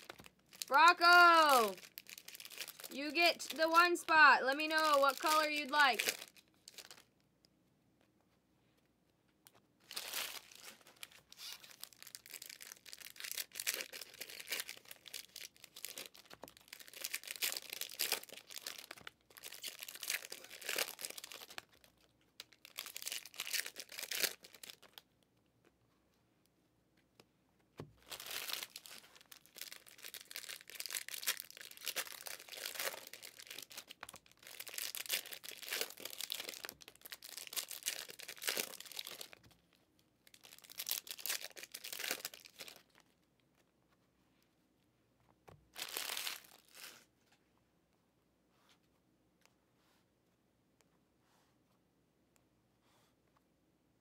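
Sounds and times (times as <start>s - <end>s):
foil wrappers tearing and crinkling: 0.0s - 7.1s, 9.8s - 25.0s, 28.0s - 39.5s, 40.3s - 43.0s, 45.7s - 47.0s.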